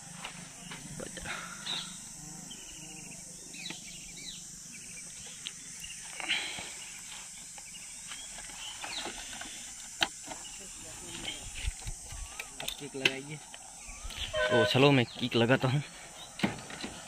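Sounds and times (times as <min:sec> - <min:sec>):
high-pitched outdoor hiss: 0:00.0 - 0:17.0
bird chirps: 0:13.8 - 0:15.3.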